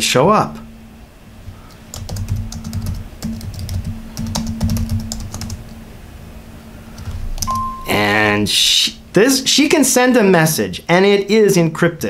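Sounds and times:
keyboard typing clicks: 0:01.9 - 0:05.7, 0:07.4 - 0:07.9.

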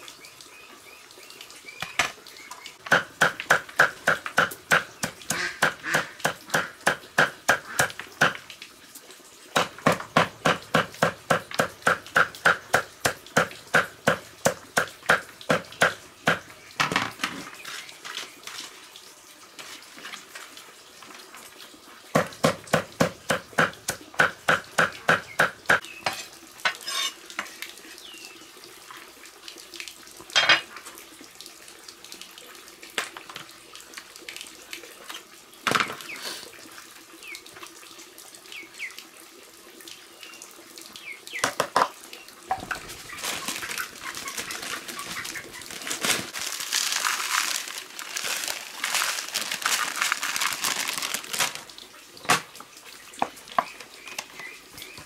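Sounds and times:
cleaver chopping on wooden block: 0:02.8 - 0:08.4
salt shaken from plastic bag: 0:42.6 - 0:51.7.

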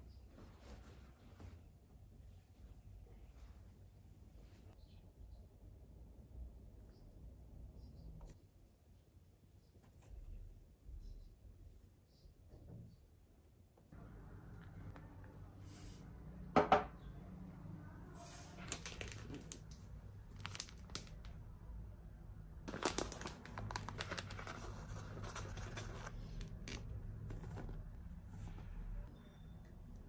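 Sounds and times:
bag crinkling: 0:18.6 - 0:21.3, 0:22.7 - 0:26.8.

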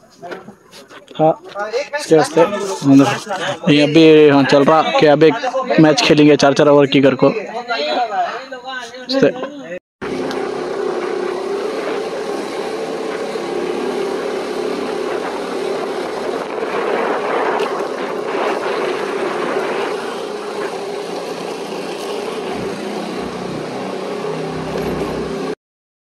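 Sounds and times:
motorcycle engine running: 0:10.0 - 0:25.6
road and wind noise: 0:10.0 - 0:25.6.

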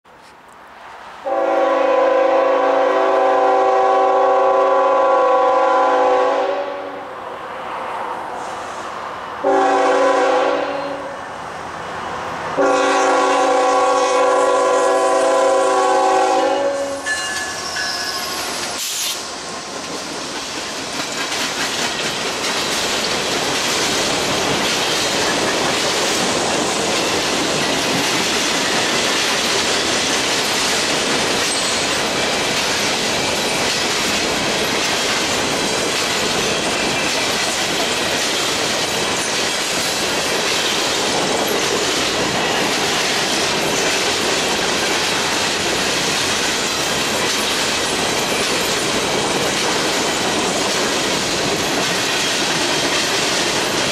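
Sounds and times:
locomotive air horn blasts: 0:01.2 - 0:07.0, 0:09.4 - 0:11.2, 0:12.6 - 0:17.2
freight train rumble and rattle: 0:07.3 - 0:53.9.

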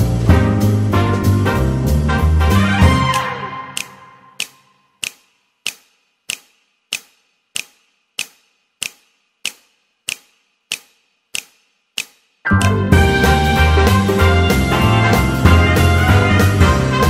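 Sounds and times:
music: 0:00.0 - 0:04.7, 0:12.5 - 0:17.0.

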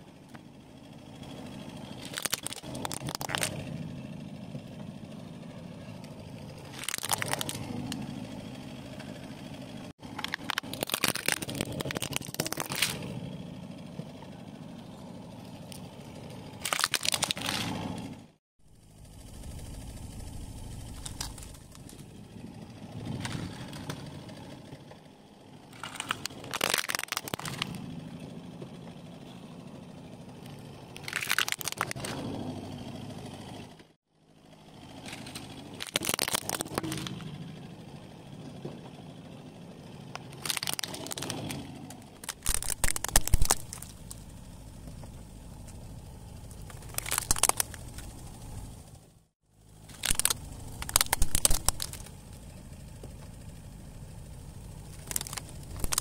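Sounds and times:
car rumble: 0:00.0 - 0:56.0
plastic toys cracking under tyre: 0:01.9 - 0:03.7, 0:06.7 - 0:08.0, 0:10.0 - 0:13.1, 0:16.6 - 0:18.0, 0:20.9 - 0:22.1, 0:25.7 - 0:27.8, 0:30.4 - 0:32.3, 0:35.0 - 0:37.3, 0:40.1 - 0:44.3, 0:46.5 - 0:48.1, 0:49.8 - 0:52.4, 0:54.9 - 0:56.0.

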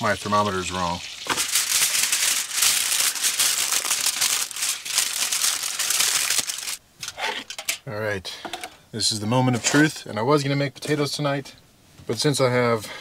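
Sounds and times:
aluminium foil crinkling: 0:01.0 - 0:06.8.

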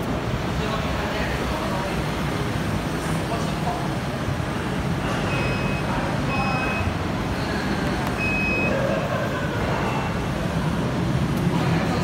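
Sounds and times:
short high warning beeps: 0:05.2 - 0:07.0, 0:08.2 - 0:08.8.

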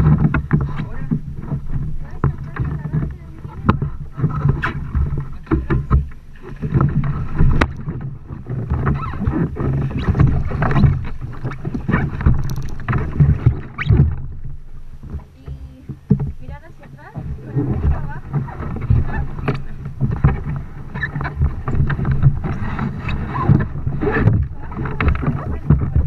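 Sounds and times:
low rumble: 0:00.0 - 0:26.0
water splashing against kayaks: 0:00.0 - 0:26.0
sharp knocks: 0:11.7 - 0:14.4.

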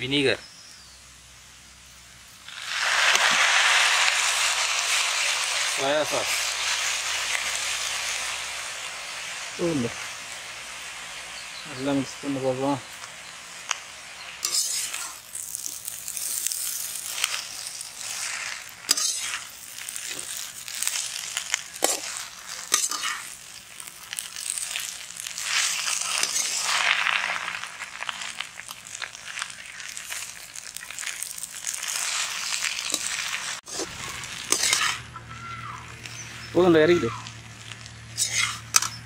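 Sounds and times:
noodles sizzling in a wok: 0:01.2 - 0:39.0
metal ladle scraping a pan: 0:14.2 - 0:23.4, 0:24.5 - 0:27.5, 0:31.9 - 0:35.1, 0:37.6 - 0:39.0.

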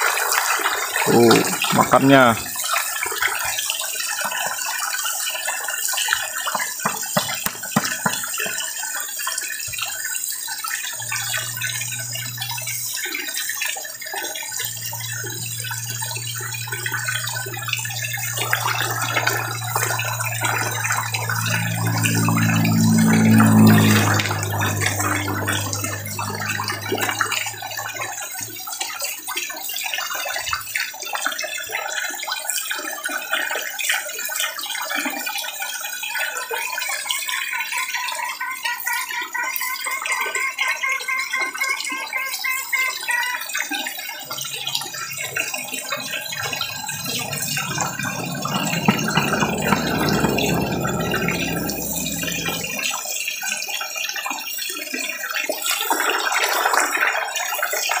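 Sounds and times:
low rumble: 0:11.0 - 0:13.0, 0:14.5 - 0:28.2, 0:44.4 - 0:53.0.

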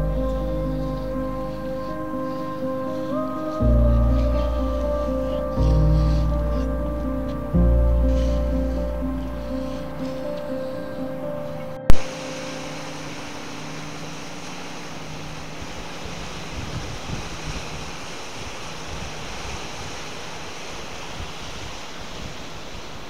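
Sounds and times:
background music: 0:00.0 - 0:16.7
wind buffeting microphone: 0:00.0 - 0:23.0
waves washing onto beach: 0:11.9 - 0:23.0.

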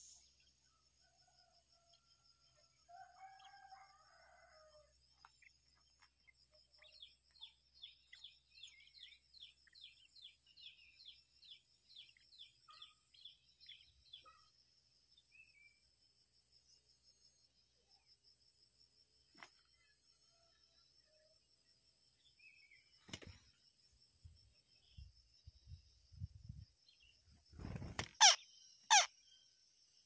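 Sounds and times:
rooster crowing: 0:02.8 - 0:04.9
bird chirping: 0:05.3 - 0:14.6, 0:24.9 - 0:29.5
insect buzz: 0:26.8 - 0:29.4.

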